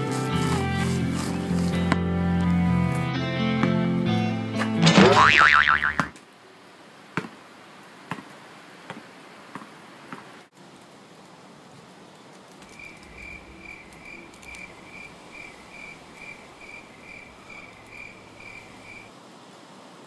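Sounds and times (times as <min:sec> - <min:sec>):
cricket chirping: 0:12.7 - 0:19.1.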